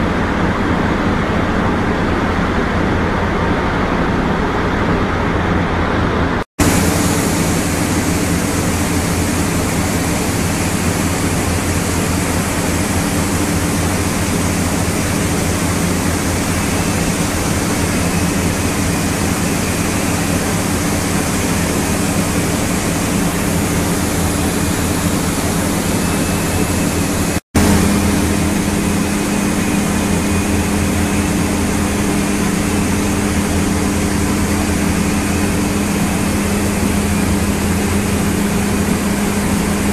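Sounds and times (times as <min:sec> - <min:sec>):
loud machinery noise: 0:00.0 - 0:39.9.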